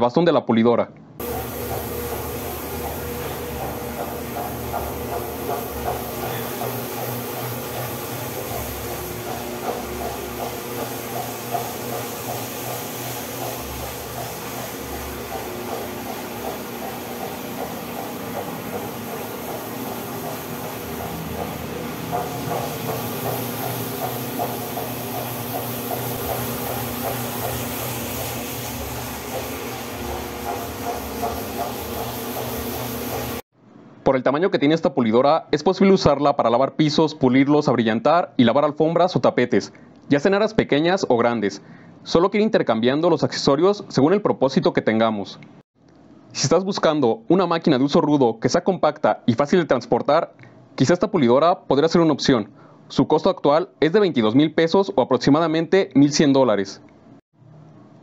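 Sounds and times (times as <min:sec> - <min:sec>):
floor polisher humming: 0:01.2 - 0:33.5.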